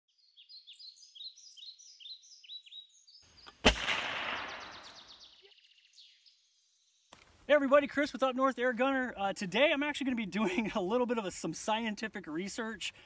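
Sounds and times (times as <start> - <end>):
songbirds chirping: 0.1 - 13.0
gunshot with echo: 3.6 - 5.2.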